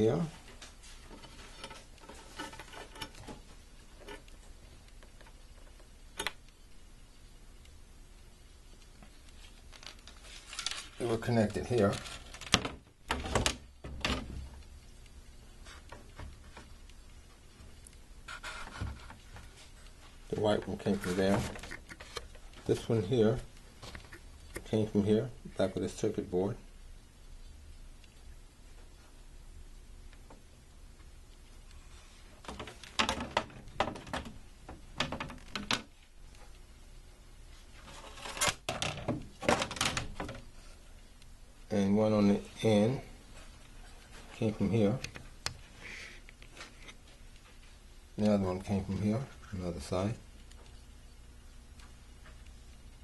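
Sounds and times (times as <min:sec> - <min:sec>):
wire connectors clicking and rattling: 0:32.4 - 0:36.6, 0:38.0 - 0:40.5.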